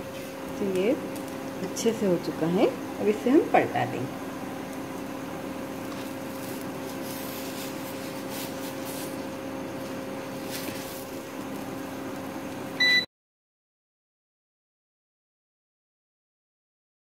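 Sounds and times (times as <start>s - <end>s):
electric cooktop hum: 0.0s - 13.1s.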